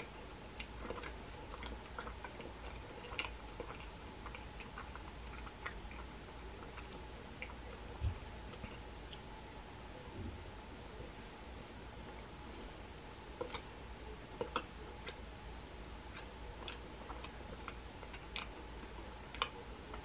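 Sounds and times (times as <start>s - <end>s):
chewing with mouth clicks: 0.0s - 9.5s, 13.4s - 13.8s, 14.4s - 15.3s, 16.1s - 20.0s.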